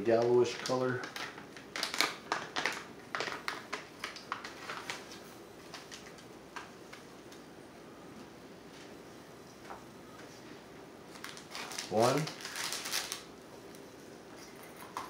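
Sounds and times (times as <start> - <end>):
plastic packet crinkling: 0.1 - 6.2, 11.1 - 13.4.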